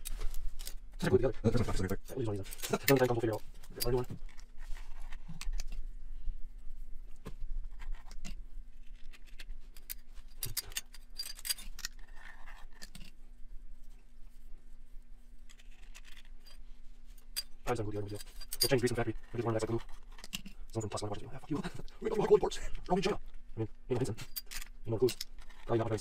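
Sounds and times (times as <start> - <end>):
metal parts scraping: 0.0 - 1.0, 1.6 - 5.8, 7.8 - 13.2, 15.5 - 21.0, 24.2 - 26.0
small metal parts clicking: 2.1 - 5.8, 7.8 - 13.2, 17.2 - 20.9, 24.2 - 25.7.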